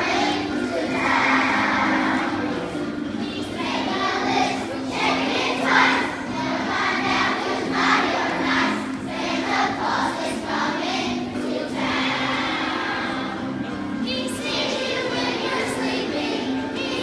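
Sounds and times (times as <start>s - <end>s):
children singing a carol: 0.0s - 17.0s.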